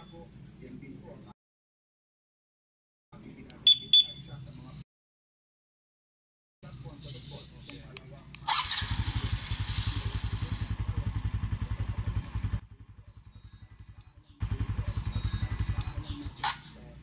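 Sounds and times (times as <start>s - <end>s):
motorcycle engine cranking and idling: 8.4s - 17.0s.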